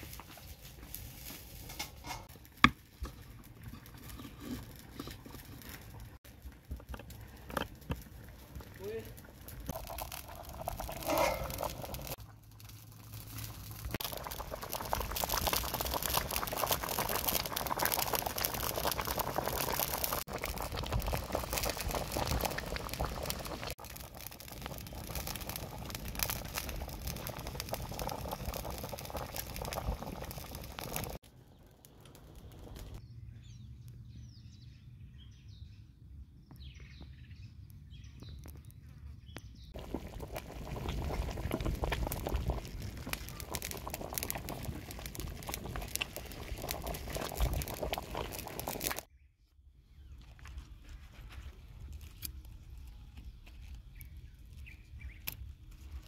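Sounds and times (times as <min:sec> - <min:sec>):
broth boiling in a wok: 0:00.0 - 0:33.0, 0:39.7 - 0:49.1.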